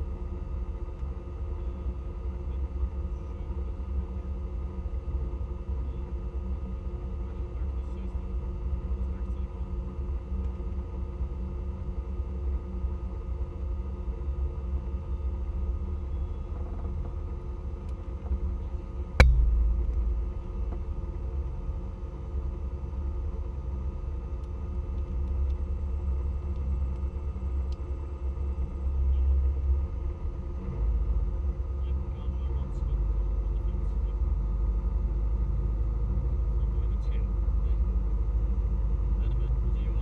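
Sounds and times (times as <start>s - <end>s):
sharp knock: 19.2s - 20.3s.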